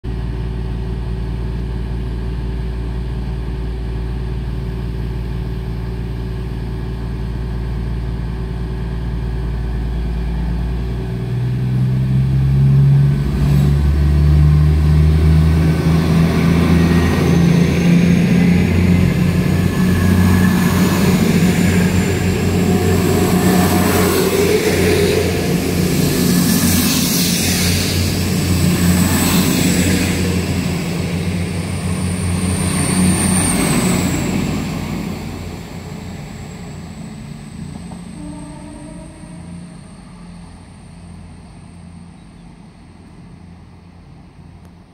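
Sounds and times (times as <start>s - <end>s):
diesel train accelerating: 0.1s - 44.9s
diesel train engine idling: 0.1s - 44.9s
wheel and rail noise: 12.5s - 44.9s.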